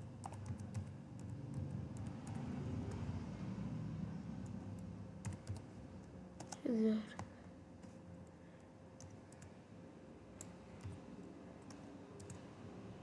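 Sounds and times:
computer keyboard keystrokes: 0.2s - 3.0s, 4.4s - 8.0s, 8.6s - 9.6s, 10.4s - 11.0s, 11.6s - 12.4s.

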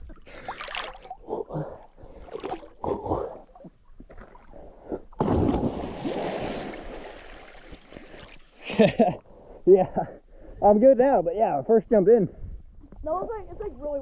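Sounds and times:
water sloshing and splashing: 0.0s - 8.6s.

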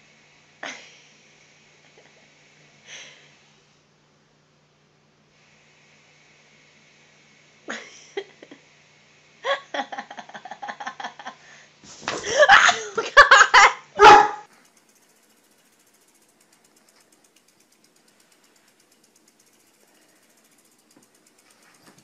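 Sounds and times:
person laughing: 9.4s - 11.4s, 12.2s - 13.9s
large dog barking: 14.0s - 14.4s.

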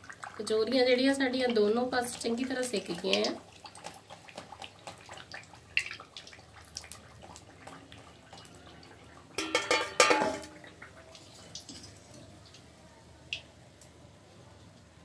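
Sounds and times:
food frying in hot oil: 0.0s - 13.8s
strainer clinking on metal cookware: 9.4s - 10.6s.

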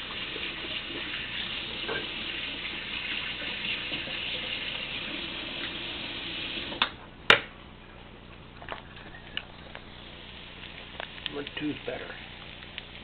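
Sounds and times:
water running from tap: 0.0s - 6.8s.

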